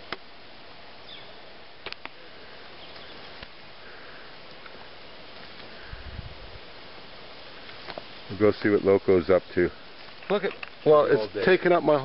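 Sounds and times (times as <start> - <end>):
outdoor hiss: 0.0 - 12.0
twigs snapping: 1.8 - 2.2.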